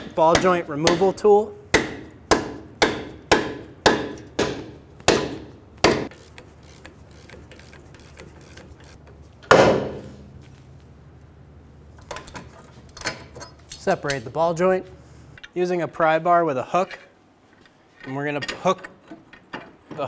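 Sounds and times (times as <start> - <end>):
hammer striking steel: 0.0 - 6.1.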